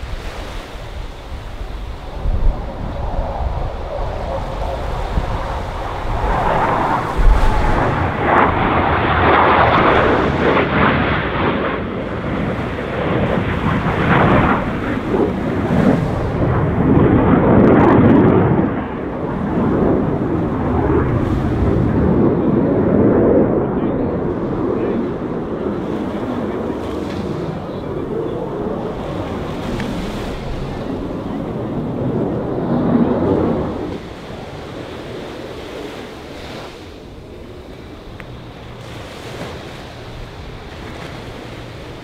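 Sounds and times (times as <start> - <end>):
jet engines rumbling: 0.0 - 42.0.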